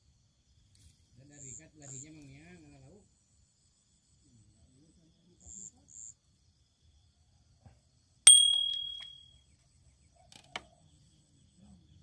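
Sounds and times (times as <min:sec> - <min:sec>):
sharp metallic ding: 0:08.3 - 0:09.2.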